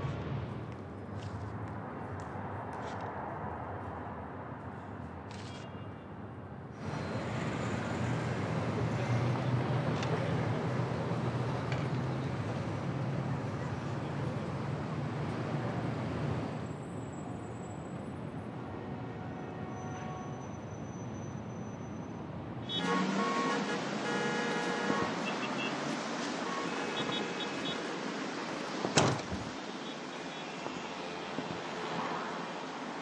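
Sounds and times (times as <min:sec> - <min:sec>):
street hum: 0:00.0 - 0:33.0
vehicle engine drone: 0:06.8 - 0:17.2, 0:22.7 - 0:28.6.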